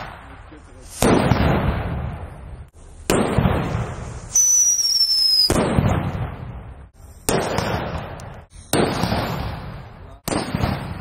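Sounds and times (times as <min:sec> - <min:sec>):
firecracker bangs echoing: 0:00.0 - 0:11.0
high whistle with hiss: 0:04.2 - 0:05.5.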